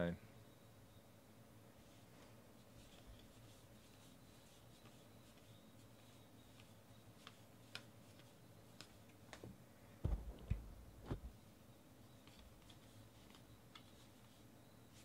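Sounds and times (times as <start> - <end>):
soft thumps: 10.0 - 11.4
cards being flipped and shuffled: 10.1 - 11.3.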